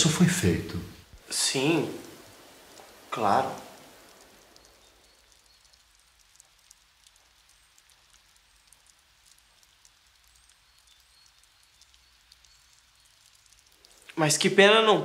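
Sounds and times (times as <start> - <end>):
low hiss with tiny ticks: 0.0 - 15.0.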